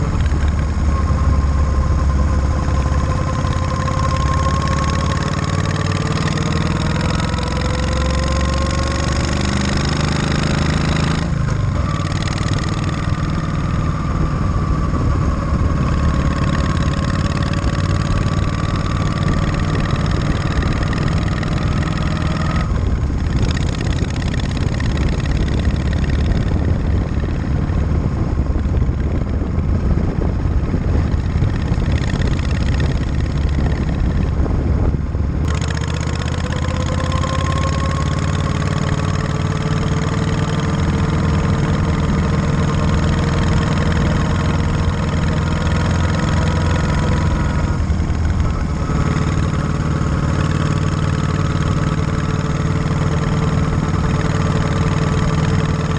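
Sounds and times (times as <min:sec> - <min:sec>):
motorcycle engine running: 0:00.0 - 0:55.9.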